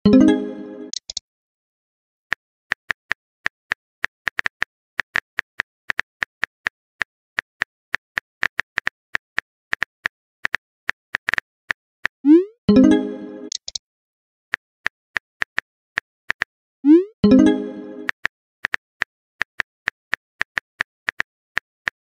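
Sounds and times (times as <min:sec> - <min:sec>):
phone keyboard tapping clicks: 0:13.5 - 0:13.8.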